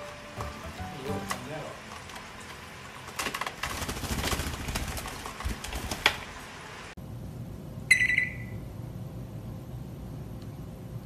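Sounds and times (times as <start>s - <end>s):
bird flapping and shaking feathers: 3.2s - 6.4s
parrot beep-like whistle: 7.9s - 8.6s.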